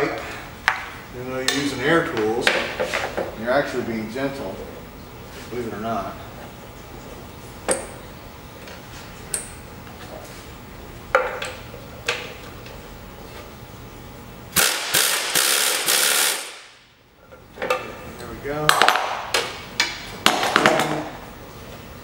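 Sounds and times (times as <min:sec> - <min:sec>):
pneumatic air tool bursts: 0:14.5 - 0:16.8.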